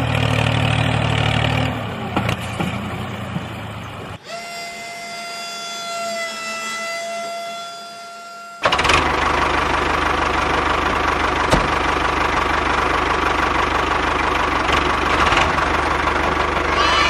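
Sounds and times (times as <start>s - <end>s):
tractor engine running: 0.0s - 4.3s, 8.6s - 17.0s.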